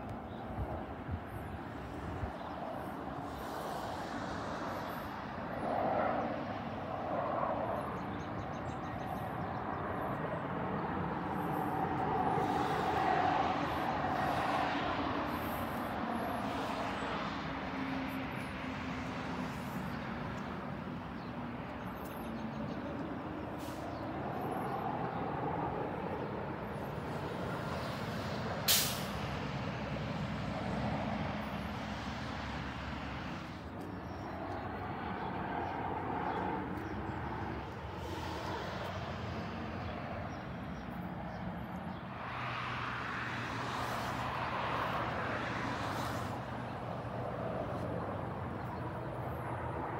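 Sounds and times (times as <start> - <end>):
vehicle traffic rumble: 0.0 - 49.9
short sharp hiss: 28.7 - 29.2.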